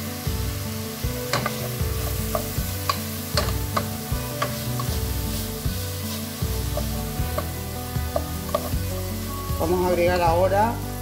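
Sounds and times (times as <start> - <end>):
meat and vegetables sizzling: 0.0 - 11.0
spoon knocking and scraping pot: 1.3 - 5.1, 6.6 - 8.8.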